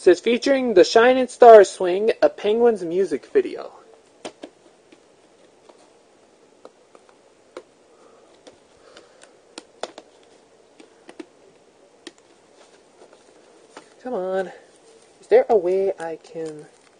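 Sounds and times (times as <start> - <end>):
hands handling plastic tape: 4.0 - 16.9.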